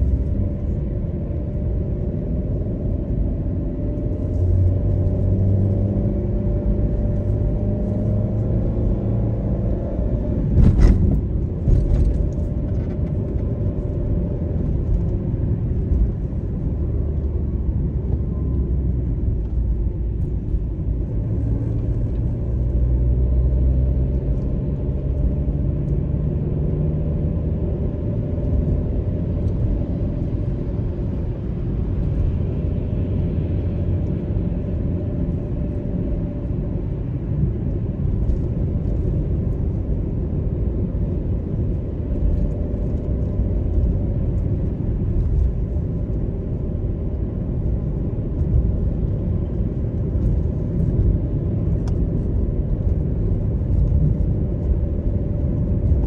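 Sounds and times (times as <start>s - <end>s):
car engine drone: 0.0s - 56.0s.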